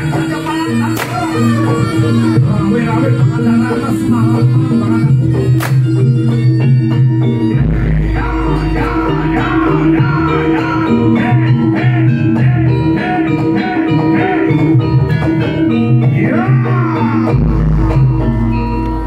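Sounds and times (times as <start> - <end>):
sliding melody line: 0.0 - 19.0
deep low tone: 0.8 - 13.4
drum strikes: 0.9 - 1.6, 5.5 - 8.2.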